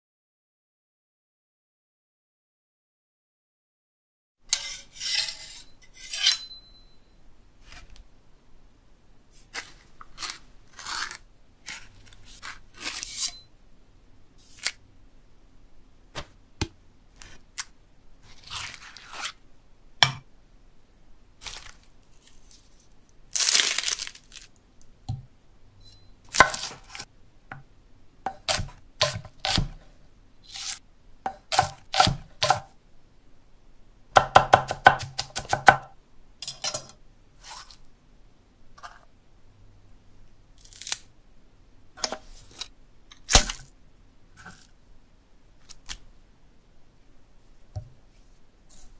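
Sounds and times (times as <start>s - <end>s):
knife scraping and scooping: 4.5s - 6.7s, 7.6s - 8.0s, 9.3s - 13.5s, 14.4s - 14.8s, 17.2s - 19.4s, 25.8s - 27.1s, 28.3s - 32.7s, 36.4s - 37.9s, 38.8s - 39.1s, 42.0s - 43.7s, 44.4s - 44.7s, 48.1s - 48.9s
knife scraped on sharpening stone: 4.5s - 7.0s, 12.4s - 13.5s
knife chopping on wooden block: 28.3s - 29.8s, 31.3s - 32.7s, 34.2s - 35.9s.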